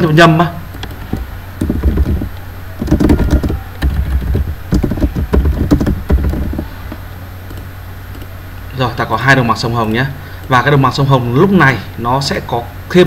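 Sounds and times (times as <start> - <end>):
keyboard typing: 0.7 - 8.4.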